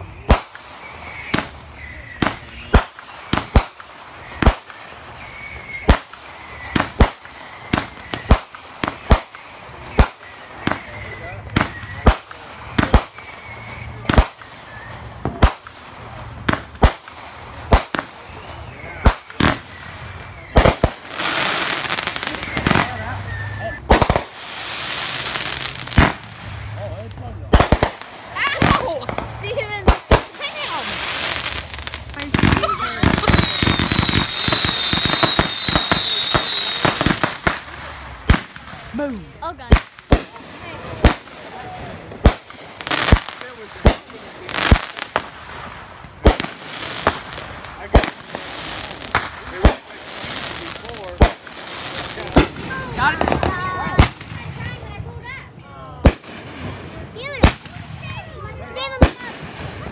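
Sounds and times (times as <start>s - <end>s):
fireworks whistle: 0.0s - 26.8s, 27.5s - 38.8s, 56.0s - 59.9s
fireworks bangs: 0.0s - 59.9s
fireworks crackling: 0.0s - 59.9s.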